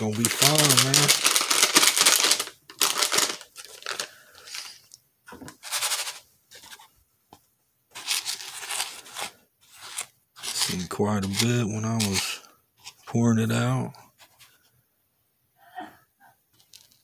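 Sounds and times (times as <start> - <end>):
gravel raked in plastic pan: 8.0 - 12.4.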